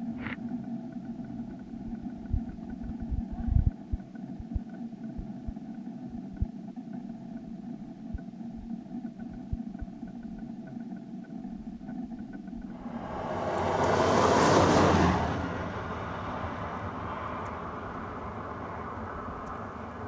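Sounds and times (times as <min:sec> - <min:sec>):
low thumps: 0:01.6 - 0:05.6.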